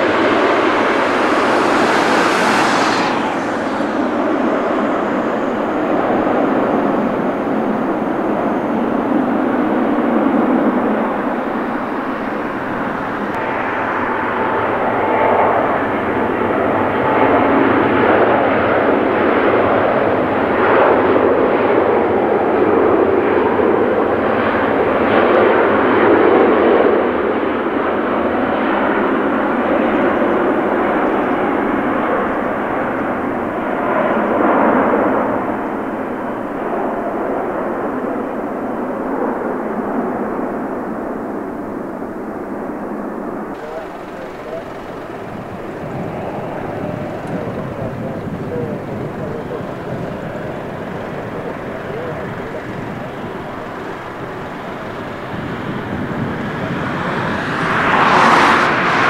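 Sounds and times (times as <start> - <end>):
high hiss: 0.0 - 9.6
jet engines rumbling: 0.0 - 59.0.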